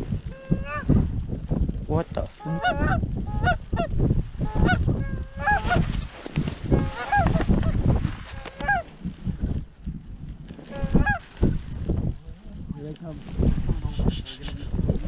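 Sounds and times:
wind rumbling on microphone: 0.0s - 15.0s
geese honking: 0.3s - 0.9s, 2.4s - 5.8s, 6.7s - 7.7s, 8.4s - 8.9s, 10.7s - 11.2s.

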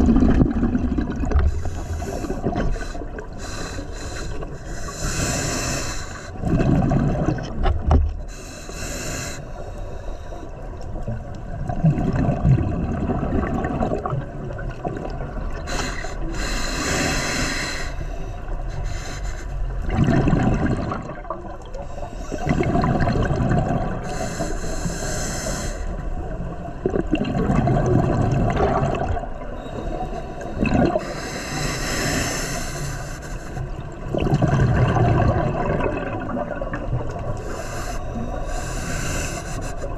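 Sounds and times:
exhaled air bubbling: 0.0s - 8.4s, 10.7s - 17.5s, 19.6s - 25.2s, 25.9s - 32.6s, 33.2s - 39.9s
regulator hissing inhale: 1.5s - 6.4s, 8.3s - 10.6s, 15.7s - 19.7s, 21.8s - 22.4s, 24.0s - 26.1s, 29.6s - 33.8s, 37.4s - 39.9s.

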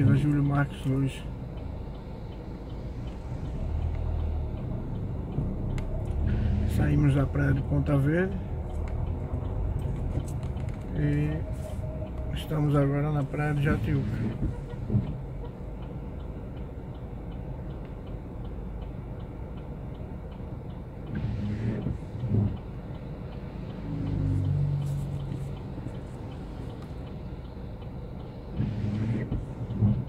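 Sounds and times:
engine and traffic rumble: 0.0s - 30.0s
turn signal ticking: 0.0s - 30.0s
windscreen wiper sweeping wet glass: 9.8s - 16.1s, 21.1s - 27.4s, 28.0s - 30.0s.

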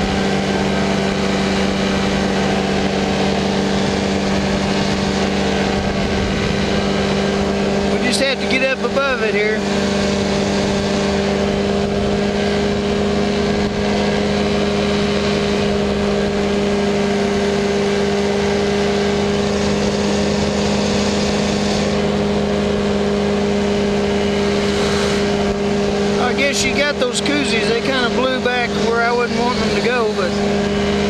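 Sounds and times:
engine and propeller droning: 0.0s - 31.0s.

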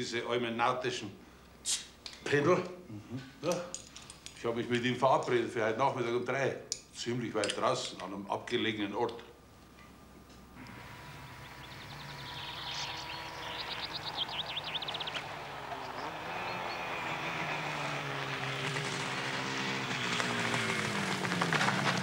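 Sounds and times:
motorcycle engine approaching: 10.6s - 22.0s
bird trill: 10.9s - 17.0s.

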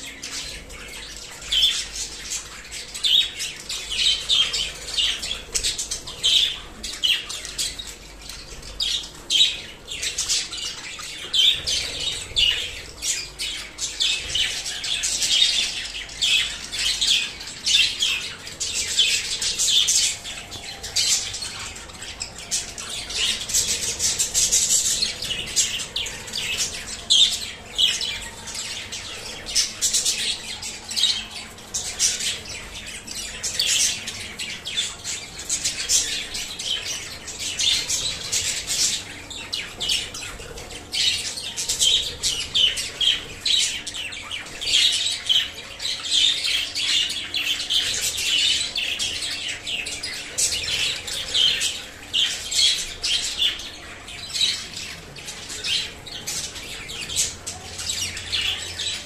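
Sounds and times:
budgerigars chattering: 0.0s - 59.0s.

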